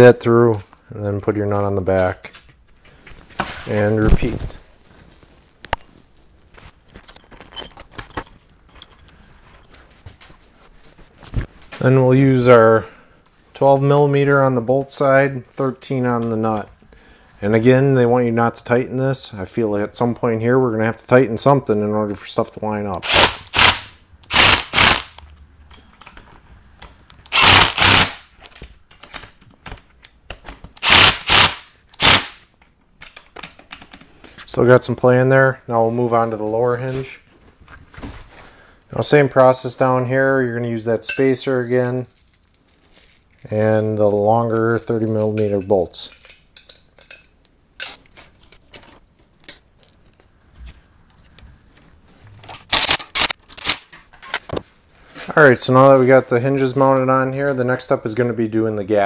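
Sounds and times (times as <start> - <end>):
metal hinge hardware clinking: 7.0 - 9.1, 25.6 - 27.1
impact driver hammering: 27.3 - 28.2.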